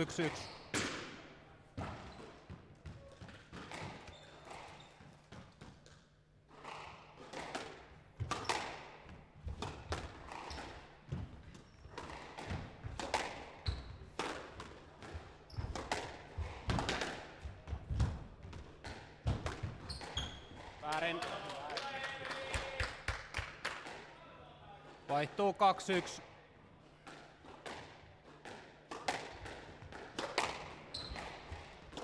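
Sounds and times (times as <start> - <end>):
squash ball knocks: 27.1 - 32.0.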